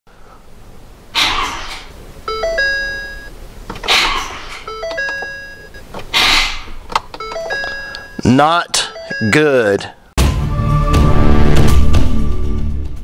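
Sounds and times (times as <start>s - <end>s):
electronic warning chimes: 2.2s - 3.4s, 4.6s - 5.9s, 7.2s - 10.0s.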